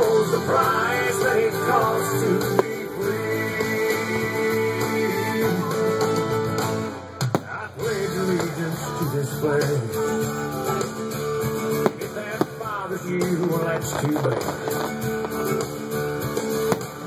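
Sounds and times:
pop-rock music: 0.0 - 17.0
fireworks bursting: 1.2 - 4.2, 7.2 - 8.7, 10.2 - 17.0.

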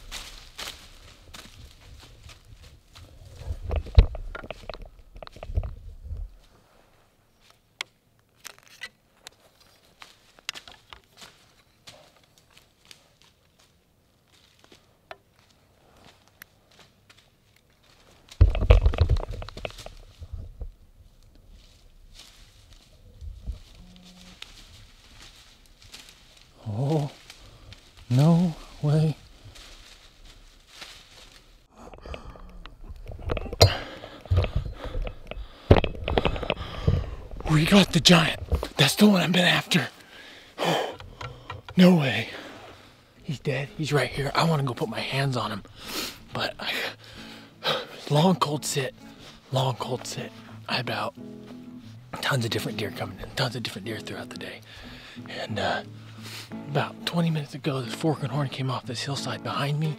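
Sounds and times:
rustling and crackling in dry leaves: 0.0 - 3.6, 9.4 - 18.5, 21.0 - 31.7
dull thumps: 32.0 - 38.8.

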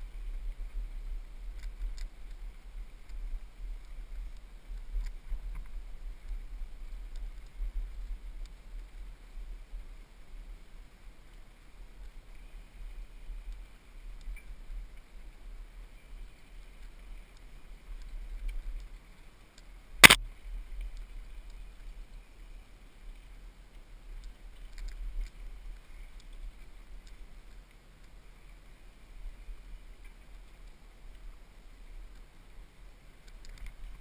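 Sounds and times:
light rattling ticks: 0.3 - 9.0, 23.2 - 28.7, 33.2 - 34.0.

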